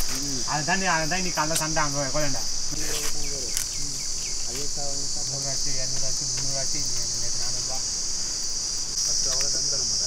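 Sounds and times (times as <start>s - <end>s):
insects chirping: 0.0s - 10.0s
man talking: 0.1s - 7.9s.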